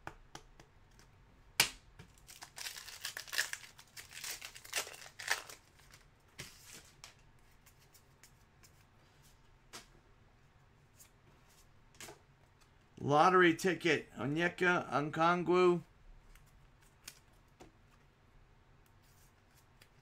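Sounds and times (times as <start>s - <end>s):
foil wrapper tearing and crinkling: 2.2s - 6.0s.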